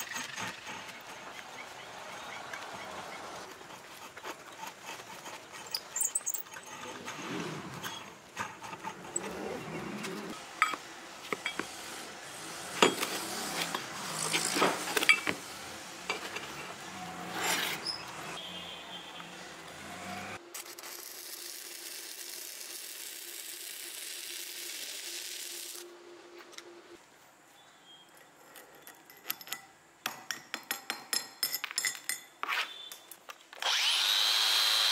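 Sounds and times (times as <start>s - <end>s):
hard objects clicking and knocking: 28.2s - 32.4s.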